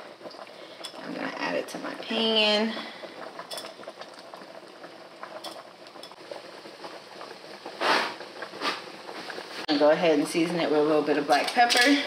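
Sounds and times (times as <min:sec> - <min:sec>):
shrimp sizzling in a frying pan: 0:00.0 - 0:12.0.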